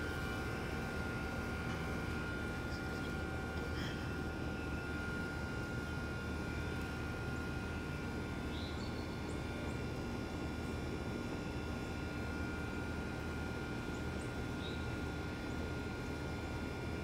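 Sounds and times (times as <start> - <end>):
faint high whine: 0.0 - 10.0
outdoor background rumble: 0.0 - 17.0.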